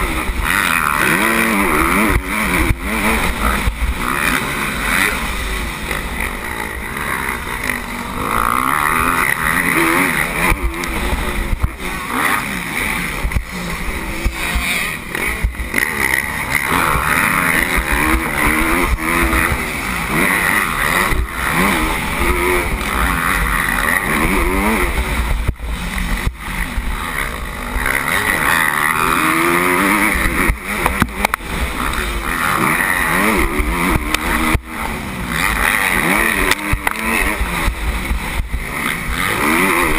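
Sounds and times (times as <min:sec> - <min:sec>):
motocross engine revving: 0:00.0 - 0:39.9.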